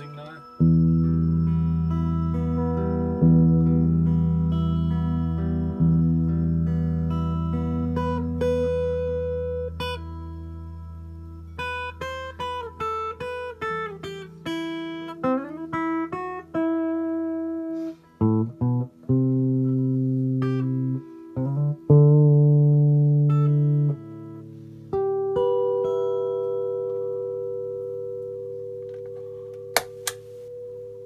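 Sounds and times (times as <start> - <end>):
dry electric guitar: 0.0 - 31.0.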